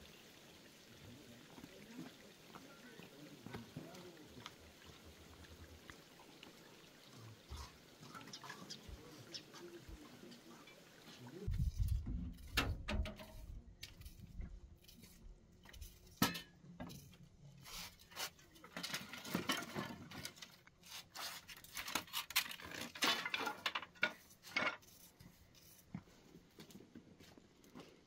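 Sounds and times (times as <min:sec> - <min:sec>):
dry sticks knocking and crackling: 0:11.8 - 0:14.0.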